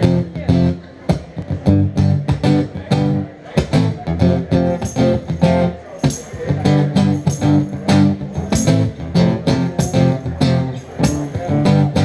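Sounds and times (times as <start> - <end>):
acoustic guitar strumming: 0.0 - 12.0.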